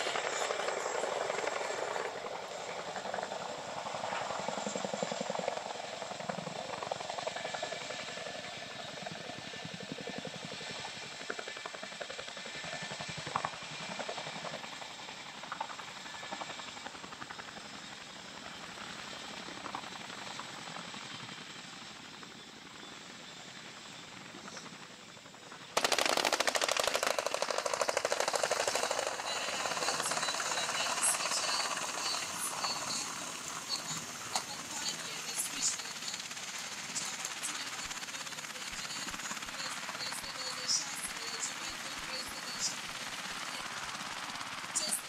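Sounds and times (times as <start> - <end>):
helicopter blade chop: 25.8 - 45.0.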